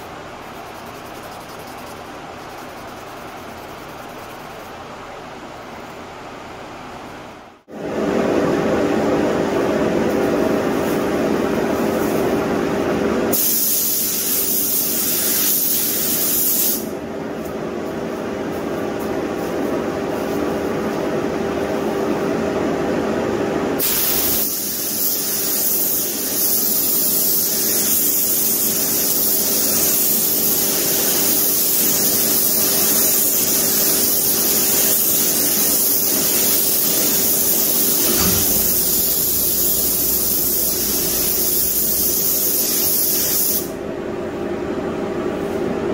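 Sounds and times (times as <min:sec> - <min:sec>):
paint booth hum: 0:00.0 - 0:45.9
spray gun hissing: 0:13.3 - 0:16.9, 0:23.8 - 0:43.7.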